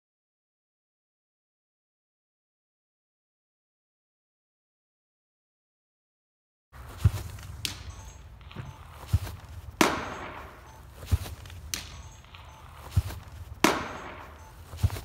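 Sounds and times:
baseball smacking into net: 6.9 - 8.0, 8.6 - 12.0, 12.8 - 15.0.

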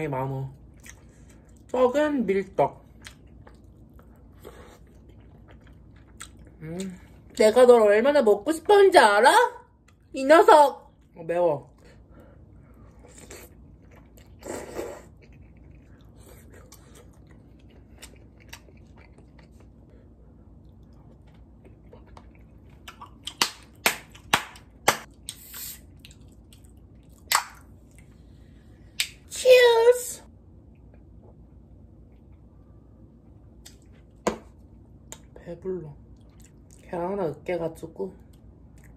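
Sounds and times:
slurping and chewing: 3.0 - 6.5, 12.9 - 19.8.

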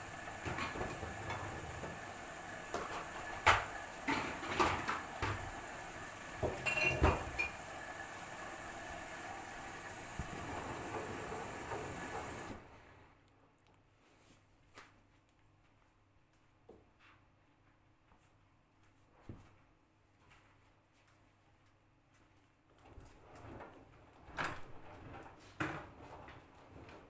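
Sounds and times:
washing machine tumbling: 0.0 - 13.0, 22.7 - 27.0.

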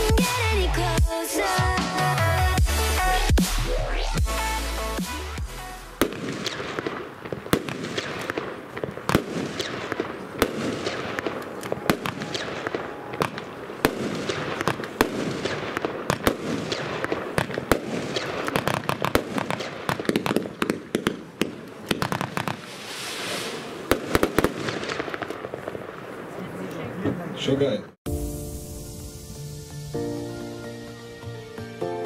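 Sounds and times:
firework shots and bursts: 0.0 - 27.0
firework hiss: 21.9 - 26.2, 28.1 - 31.6.

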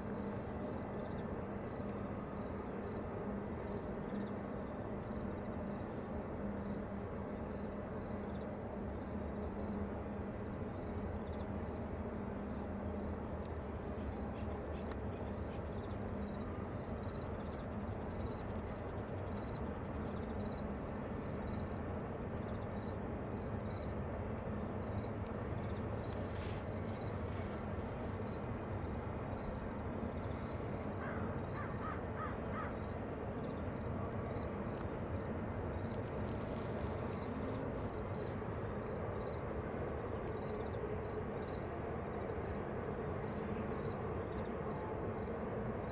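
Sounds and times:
faint click: 14.8 - 15.0, 34.7 - 34.9
distant freight train rumble: 23.1 - 45.9
crow cawing: 31.0 - 32.7.

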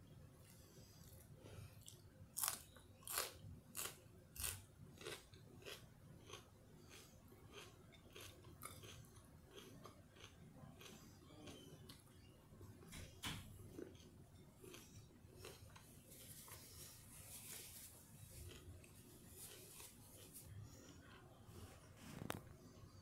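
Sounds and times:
person chewing with clicks: 1.8 - 12.1, 13.7 - 15.9, 18.4 - 21.3.

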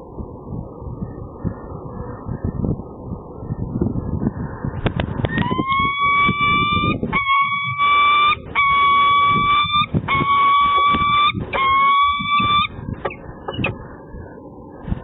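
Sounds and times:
wind rumble on microphone: 0.0 - 15.0
falcon calling: 5.2 - 13.9.

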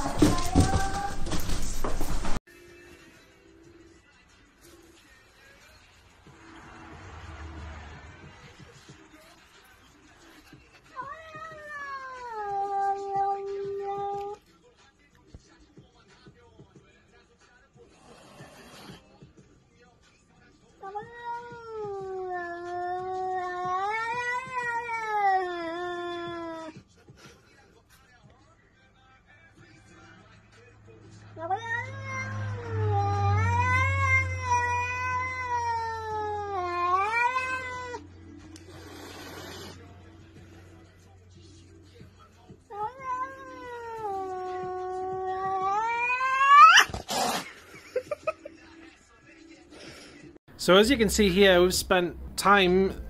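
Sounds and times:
cat yowling: 0.0 - 1.4, 10.9 - 14.4, 20.8 - 26.7, 31.4 - 38.1, 42.7 - 47.4.

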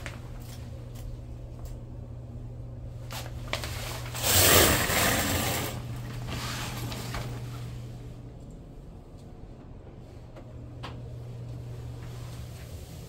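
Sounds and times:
steady low hum: 0.0 - 13.0
shower curtain pulled aside: 3.5 - 7.3.

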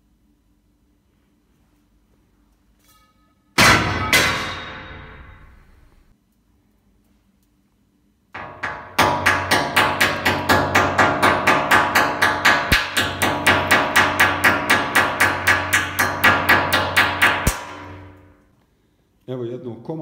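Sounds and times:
hammer striking glass: 3.6 - 5.7, 8.4 - 18.2.

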